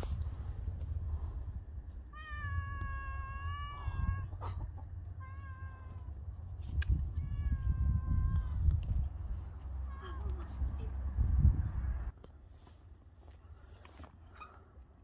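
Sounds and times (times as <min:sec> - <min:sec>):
cat meowing: 0:02.1 - 0:04.4, 0:05.2 - 0:06.1, 0:06.9 - 0:08.6.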